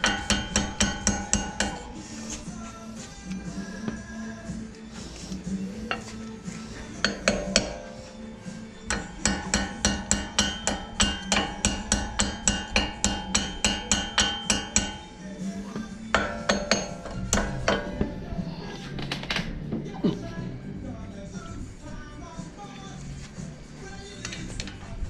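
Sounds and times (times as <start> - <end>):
hammer tapping on metal: 0.0 - 1.8, 7.0 - 8.0, 8.9 - 15.1, 16.1 - 18.1.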